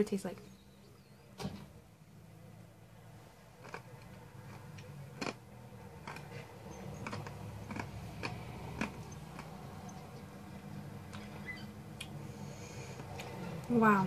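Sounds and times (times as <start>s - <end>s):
mouth clicks and smacks chewing: 6.0s - 10.1s.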